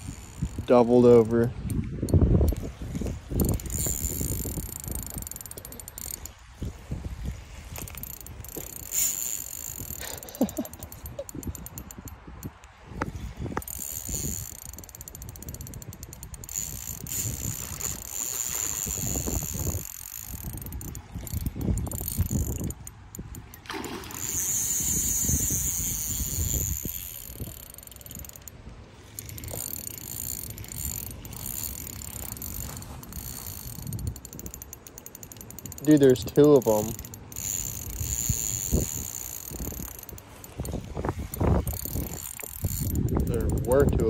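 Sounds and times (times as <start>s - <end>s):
fishing reel drag clicking: 0.0s - 44.0s.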